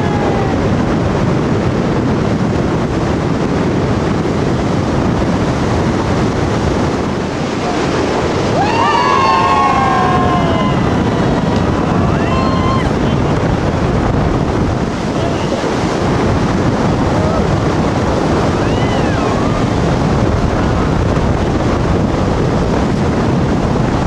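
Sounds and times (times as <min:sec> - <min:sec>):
person yelling: 0:00.0 - 0:00.7, 0:08.5 - 0:11.2, 0:11.9 - 0:13.0
wind on microphone: 0:00.0 - 0:24.0
river rapids: 0:05.4 - 0:22.1.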